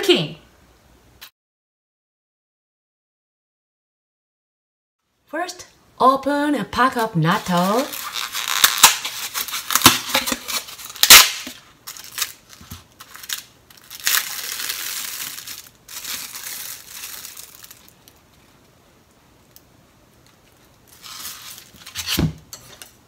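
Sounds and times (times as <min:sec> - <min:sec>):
plastic film crinkling: 0:07.0 - 0:18.8, 0:20.2 - 0:22.2
foam lid snapping and creaking: 0:07.9 - 0:13.4.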